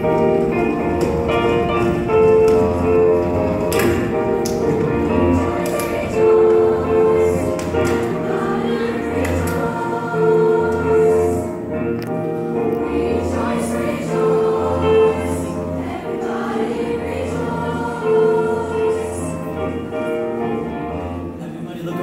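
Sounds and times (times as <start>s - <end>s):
choir singing in harmony: 0.0s - 21.4s
instrumental backing: 0.0s - 22.0s.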